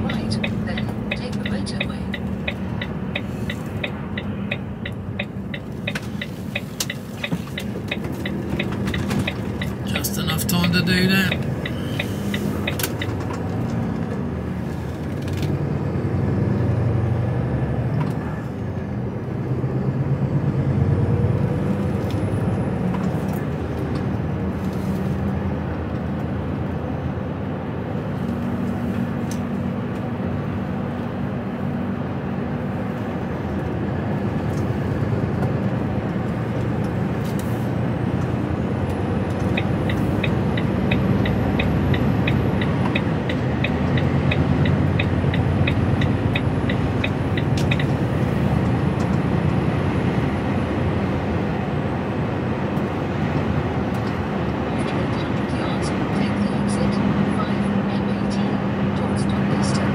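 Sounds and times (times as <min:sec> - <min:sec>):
regular ticking: 0:00.0 - 0:13.5, 0:38.8 - 0:49.2
diesel engine and tyre noise: 0:00.0 - 0:59.9.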